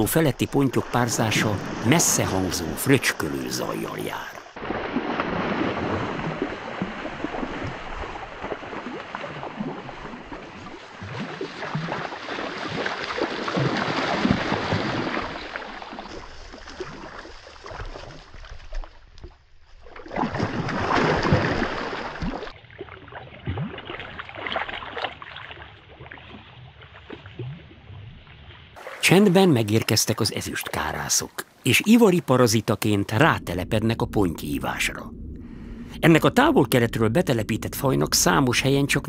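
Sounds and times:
fish thrashing and splashing: 4.4s - 27.5s.

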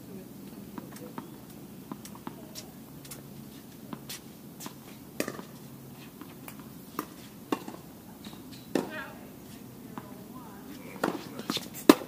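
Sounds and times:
low background noise: 0.0s - 12.0s
tennis balls struck and bouncing: 0.7s - 3.2s, 3.9s - 5.6s, 6.2s - 9.2s, 10.8s - 12.0s.

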